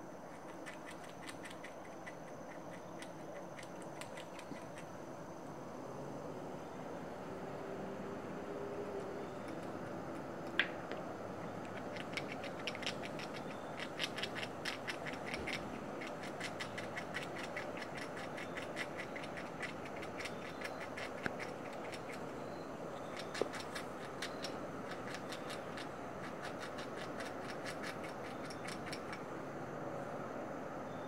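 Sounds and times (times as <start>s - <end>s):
steady background hiss: 0.0s - 31.0s
squirrel gnawing clicks: 0.3s - 4.9s, 9.3s - 29.3s.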